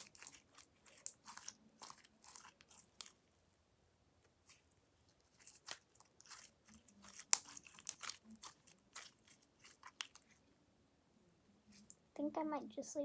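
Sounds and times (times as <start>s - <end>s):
slime squelching between fingers: 0.0s - 3.3s, 4.2s - 10.4s.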